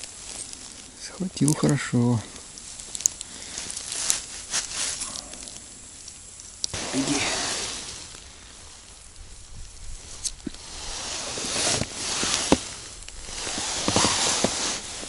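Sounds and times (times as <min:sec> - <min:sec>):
clothing rustling against snow: 0:00.0 - 0:05.5, 0:06.7 - 0:15.0.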